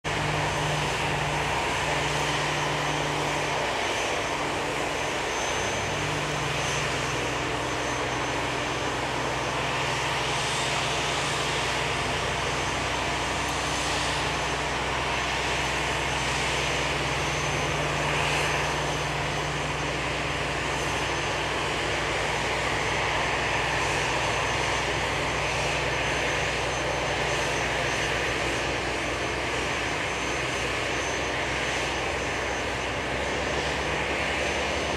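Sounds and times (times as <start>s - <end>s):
aircraft tug hum and hiss: 0.1s - 34.9s.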